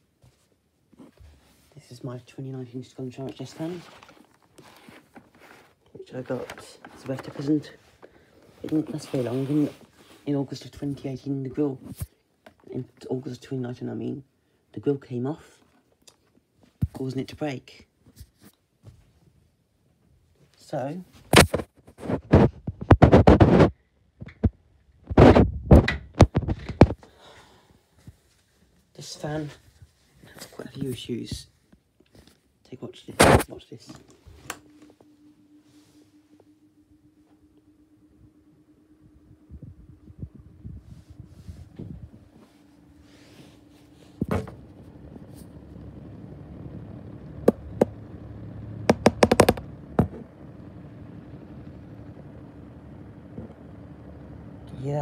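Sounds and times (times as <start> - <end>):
handling knocks and rubbing: 3.0 - 10.3, 40.8 - 50.8
desk fan motor hum: 33.9 - 55.0
fan thump: 43.9 - 46.0, 47.4 - 48.1, 48.8 - 50.4
sharp knocks from fan: 48.8 - 50.2.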